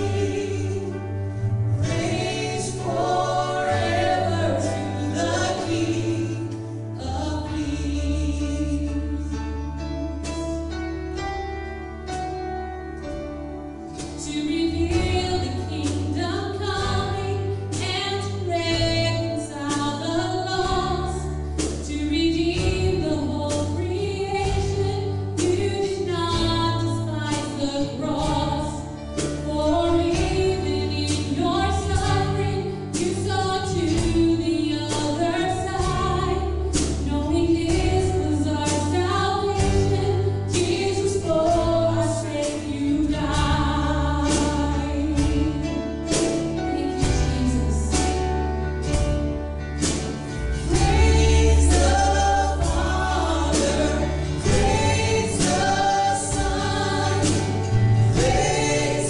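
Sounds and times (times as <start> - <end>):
woman singing: 0.0 - 1.2, 1.8 - 9.6, 14.1 - 48.4, 50.7 - 59.0
acoustic guitar: 0.0 - 59.0
keyboard: 0.0 - 59.0
second guitar: 0.0 - 59.0
sustained bass notes: 0.0 - 59.0
steady drum beat: 1.7 - 6.6, 28.1 - 42.1, 43.0 - 59.0.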